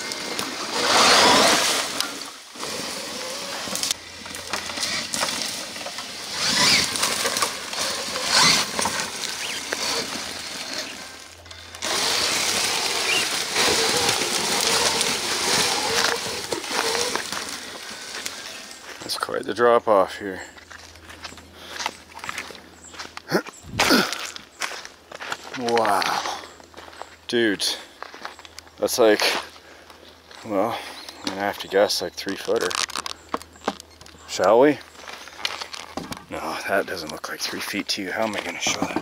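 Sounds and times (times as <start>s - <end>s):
electric motor and drivetrain noise: 0.0s - 19.2s
faint steady whine: 0.0s - 25.6s
tyres crunching on gravel: 0.0s - 39.0s.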